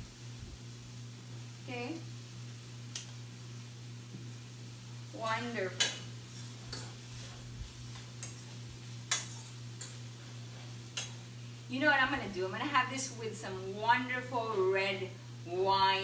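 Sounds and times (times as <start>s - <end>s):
faint sizzle: 0.0s - 16.0s
pasta stirred in frying pan: 0.7s - 13.4s.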